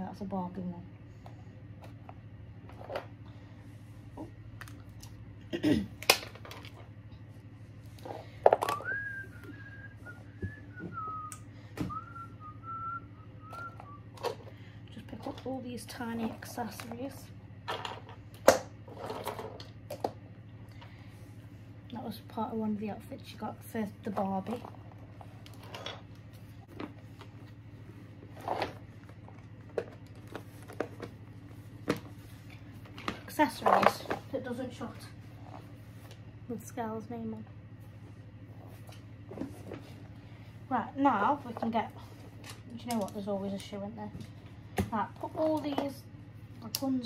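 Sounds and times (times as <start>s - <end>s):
low steady hum: 0.0s - 47.0s
person whistling a tune: 8.7s - 14.2s.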